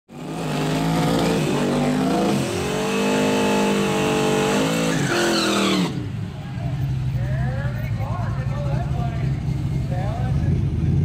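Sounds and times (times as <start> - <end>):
engine revving hard: 0.1 - 6.0.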